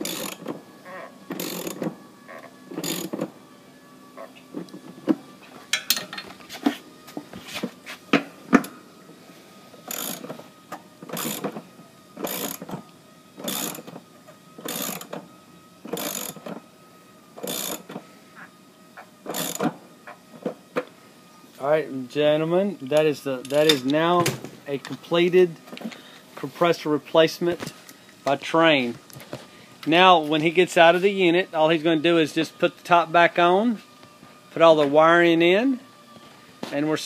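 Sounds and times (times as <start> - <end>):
socket ratchet clicking: 0.0 - 0.4, 1.4 - 1.8, 2.8 - 3.1.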